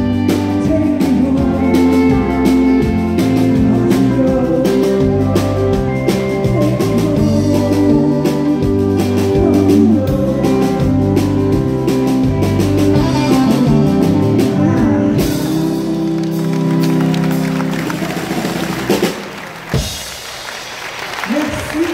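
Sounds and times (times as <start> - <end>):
live country band: 0.0 - 21.9
woman singing: 0.4 - 12.1, 12.9 - 16.3
audience applause: 15.9 - 21.9.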